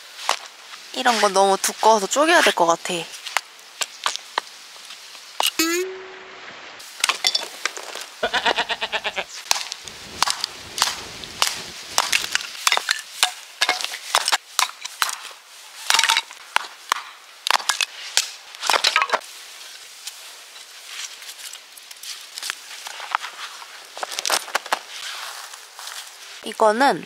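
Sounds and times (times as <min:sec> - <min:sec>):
wood cracking and splintering: 0:09.5 - 0:12.9.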